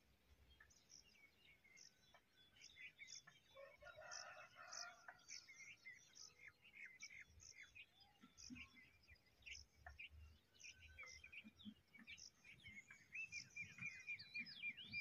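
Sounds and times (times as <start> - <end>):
small birds chirping: 0.0 - 15.0
distant rooster crowing: 3.6 - 5.3.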